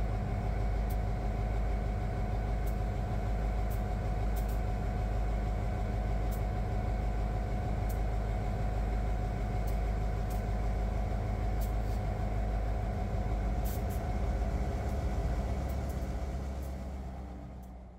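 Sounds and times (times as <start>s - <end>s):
diesel locomotive engine rumble: 0.0s - 17.9s
steady humming tone: 0.0s - 17.9s.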